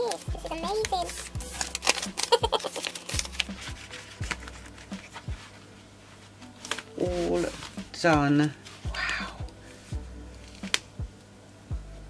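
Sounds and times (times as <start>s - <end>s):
plastic zip pockets handled: 0.0s - 5.3s
paper banknotes crinkling: 0.0s - 8.9s
quiet background music: 0.0s - 12.0s
deep bass beat: 8.9s - 10.3s, 11.0s - 12.0s.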